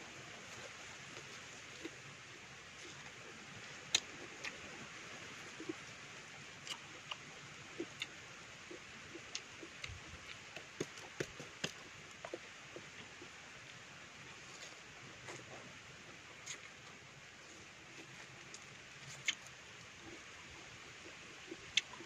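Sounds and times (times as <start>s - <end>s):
faint steady hiss: 0.0s - 22.0s
wet chewing smacks: 6.6s - 7.2s.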